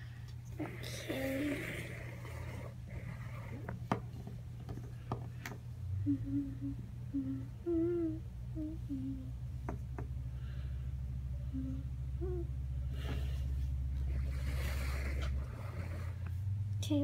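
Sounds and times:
person humming a tune: 5.9s - 9.4s, 11.4s - 12.6s.

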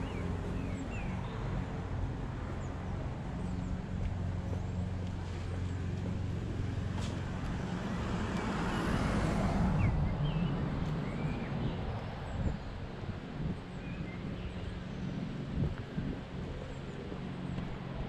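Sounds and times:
car driving past: 6.8s - 11.2s.

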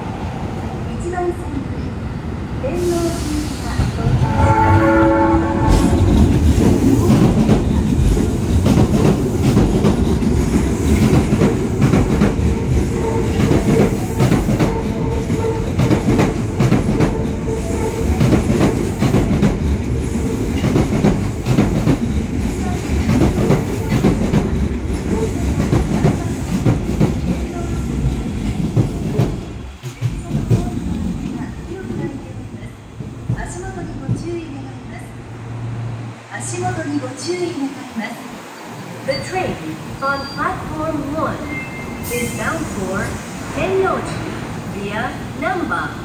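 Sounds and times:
train rumbling over rail joints: 2.6s - 45.9s
train horn blast: 4.0s - 6.2s.

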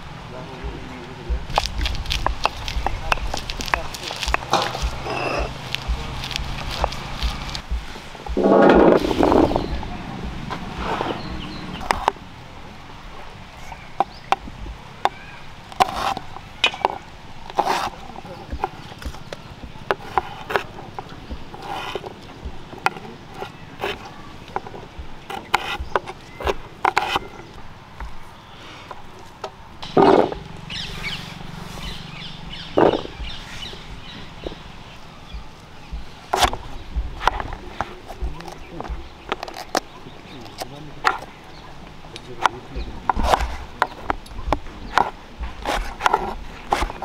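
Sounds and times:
birds chirping: 0.0s - 47.0s
knife chopping onto wooden board: 1.3s - 9.7s, 17.6s - 27.3s, 42.4s - 47.0s.

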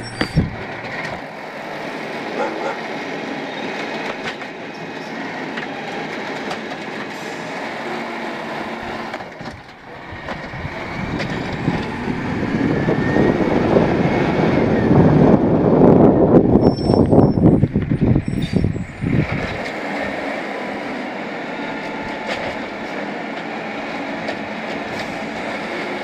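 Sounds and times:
hydraulic arm whirring: 0.0s - 1.3s
truck engine: 0.0s - 26.0s.

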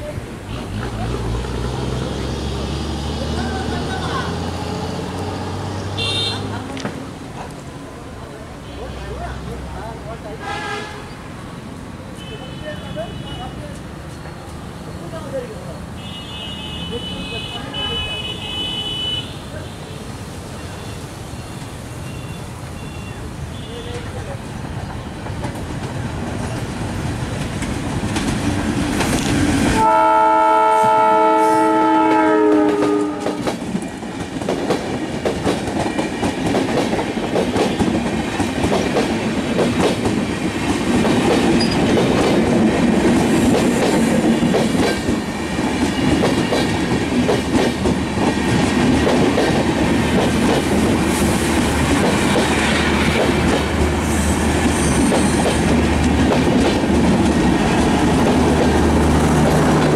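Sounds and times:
locomotive horn: 6.0s - 6.6s, 10.4s - 11.2s, 29.8s - 33.6s
train wheels clickety-clack: 23.9s - 29.9s, 32.1s - 59.9s.

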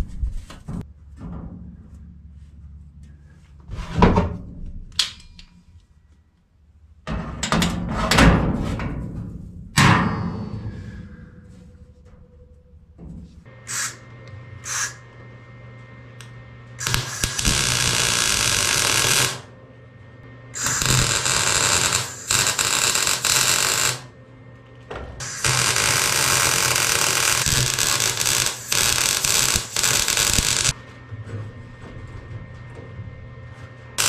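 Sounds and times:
arc welding crackle: 16.8s - 19.5s, 20.6s - 24.1s, 25.2s - 30.8s.

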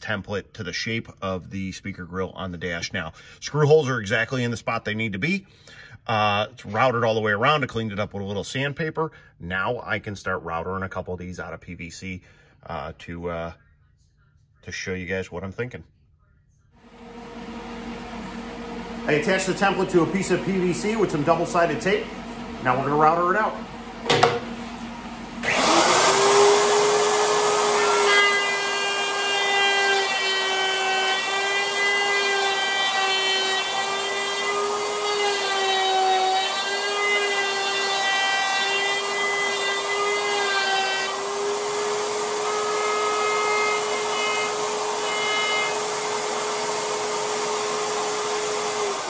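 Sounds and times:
router cutting plastic: 25.4s - 49.0s
router motor whine: 25.4s - 49.0s.

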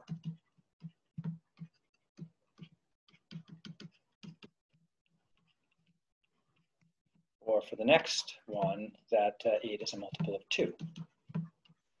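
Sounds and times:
stylus tapping on a tablet: 0.0s - 4.6s, 10.0s - 12.0s.

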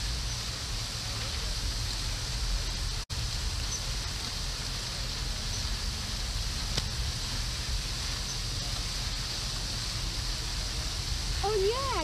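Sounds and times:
steady high hiss: 0.0s - 12.0s
wind rumble on microphone: 0.0s - 12.0s.

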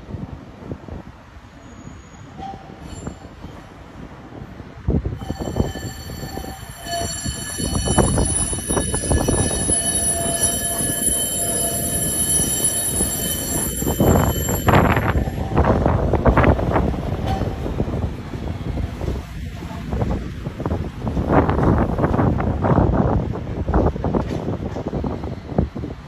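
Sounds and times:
tram wheel rumble: 0.0s - 26.0s
high-pitched wheel squealing: 5.2s - 16.0s.

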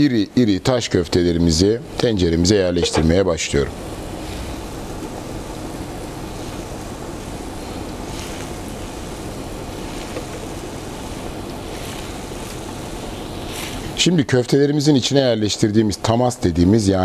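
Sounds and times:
broth bubbling in pot: 3.7s - 14.1s.

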